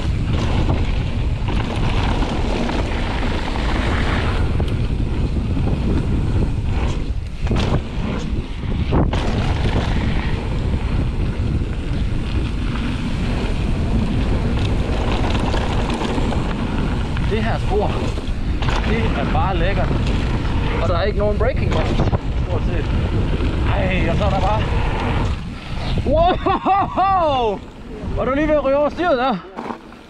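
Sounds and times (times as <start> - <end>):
tyres rolling over gravel: 0.0 - 26.3, 27.2 - 30.0
wind buffeting microphone: 0.0 - 29.4.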